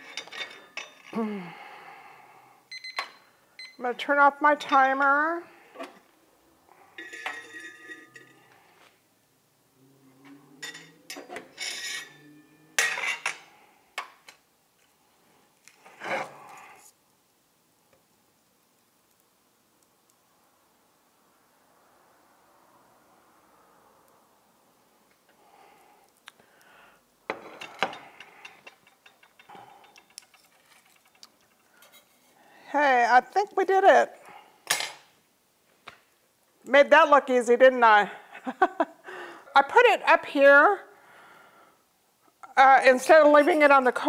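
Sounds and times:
metal clinks and clatter: 0:07.0 - 0:08.4, 0:27.5 - 0:32.2.

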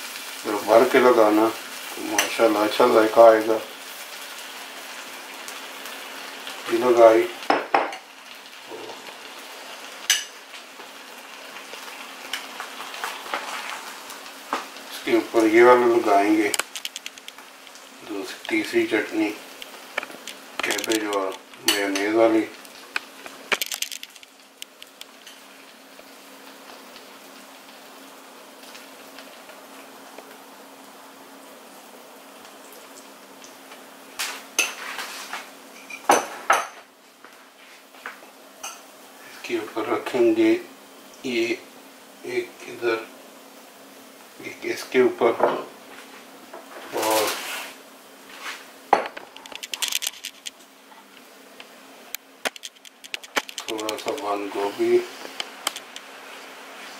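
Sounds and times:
buns sizzling on a griddle: 0:00.0 - 0:56.9
metal utensils clinking on pan: 0:20.6 - 0:22.2.

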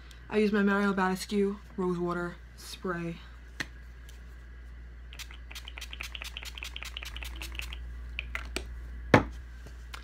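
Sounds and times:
spray bottle spritzing: 0:05.2 - 0:07.8.

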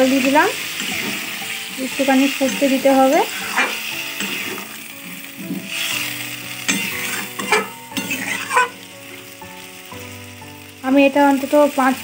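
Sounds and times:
curry gravy sizzling in a pot: 0:00.0 - 0:12.0
spatula scraping a metal pot: 0:02.5 - 0:04.7, 0:06.7 - 0:08.8.

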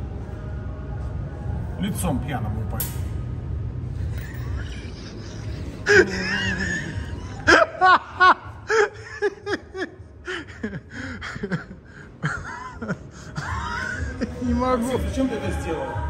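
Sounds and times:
person laughing hard: 0:04.1 - 0:14.4.

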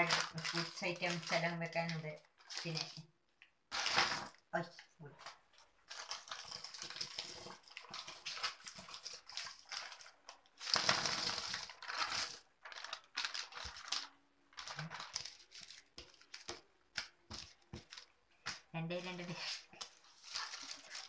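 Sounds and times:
wrappers crinkling: 0:00.0 - 0:03.1, 0:03.7 - 0:04.4, 0:05.2 - 0:21.0
candies pattering onto plates: 0:05.2 - 0:21.0.

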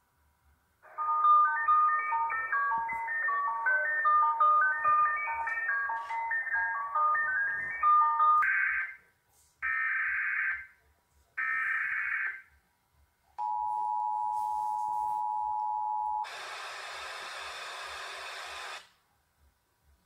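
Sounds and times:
static hiss: 0:16.2 - 0:19.0.

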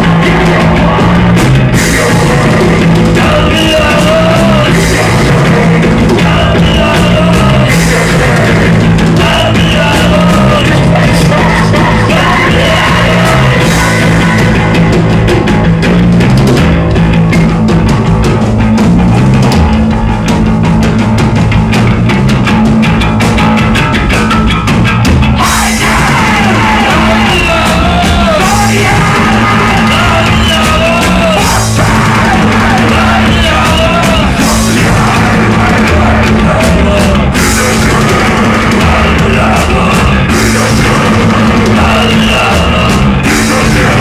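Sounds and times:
person singing: 0:00.0 - 0:14.9, 0:25.4 - 0:44.0
electric bass low notes: 0:00.0 - 0:44.0
live rock band playing: 0:00.0 - 0:44.0.

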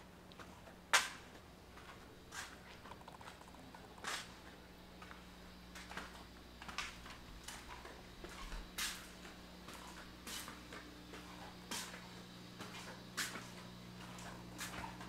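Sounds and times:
steady low hum: 0:00.0 - 0:15.0
footsteps on pavement: 0:04.0 - 0:15.0.

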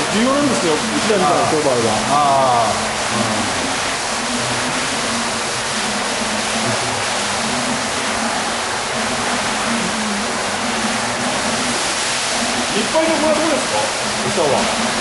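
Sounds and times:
water rushing and splashing: 0:00.0 - 0:15.0.

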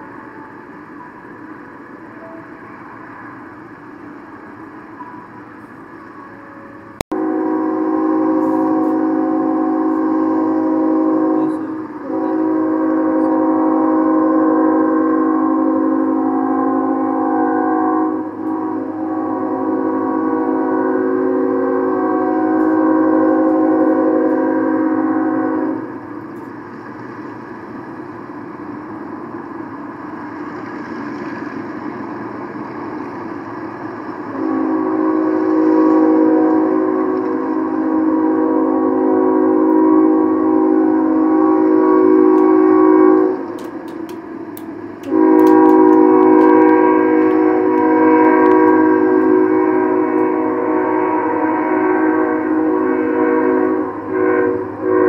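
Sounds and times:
noisy rumble: 0:00.0 - 0:55.0
locomotive air horn blasts: 0:06.2 - 0:26.0, 0:34.3 - 0:43.6, 0:45.0 - 0:55.0.

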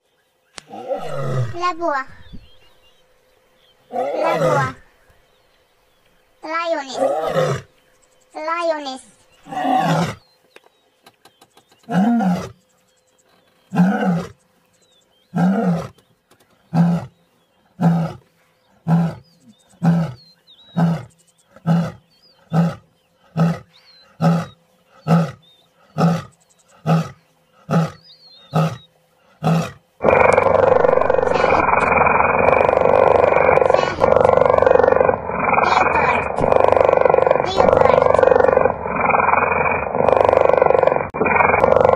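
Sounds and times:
lioness roaring grunts: 0:00.7 - 0:02.5, 0:03.9 - 0:04.8, 0:06.9 - 0:07.7, 0:19.8 - 0:28.8, 0:29.4 - 0:41.9
loud continuous rough noise: 0:29.9 - 0:41.9.

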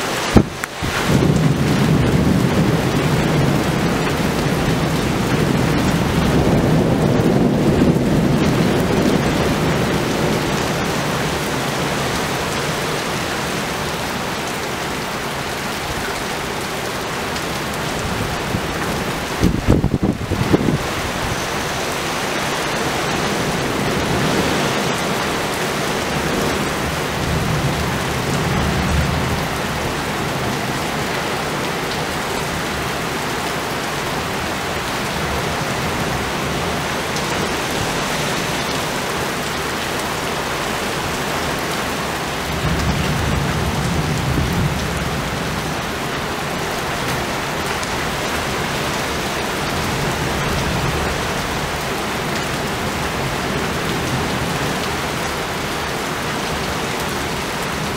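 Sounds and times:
heavy rain pouring: 0:00.0 - 0:57.9
thunder rolling: 0:00.3 - 0:12.2, 0:42.4 - 0:45.9.

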